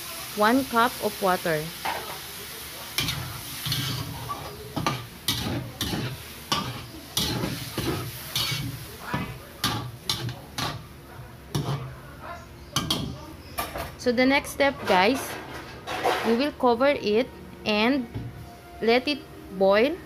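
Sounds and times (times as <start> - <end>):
pan sizzling: 0.0 - 13.6
metal spatula scraping wok: 3.0 - 10.9, 11.5 - 12.0, 14.9 - 16.6.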